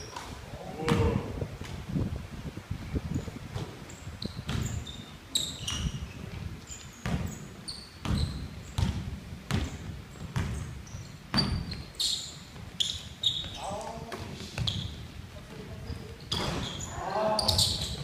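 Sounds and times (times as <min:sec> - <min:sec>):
sneakers squeaking on floor: 0:03.1 - 0:18.0
basketball dribbling on hardwood: 0:08.0 - 0:11.8.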